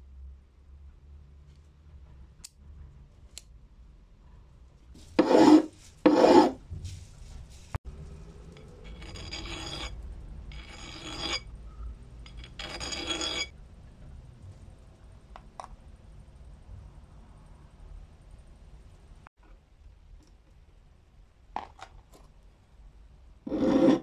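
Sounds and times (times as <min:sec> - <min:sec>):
file rasping on metal: 0:05.2 - 0:06.6, 0:09.0 - 0:09.9, 0:10.5 - 0:11.4, 0:23.5 - 0:24.0.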